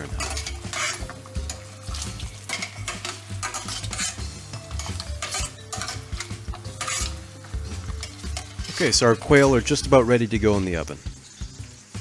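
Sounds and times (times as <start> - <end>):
metal tongs scraping a pan: 0.0 - 10.1
glaze sizzling in a pan: 0.0 - 12.0.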